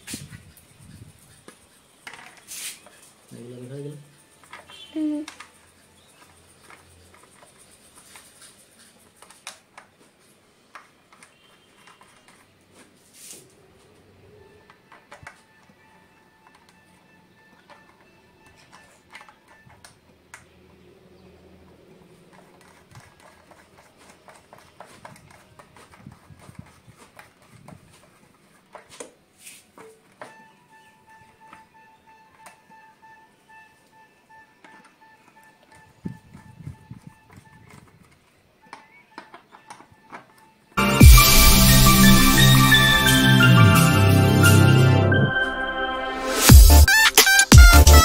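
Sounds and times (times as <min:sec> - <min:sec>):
short rustle: 0:00.0 - 0:03.5, 0:11.5 - 0:13.6, 0:22.8 - 0:29.8
brief hiss: 0:02.4 - 0:02.9
screwdriver clicks and taps: 0:17.6 - 0:20.5.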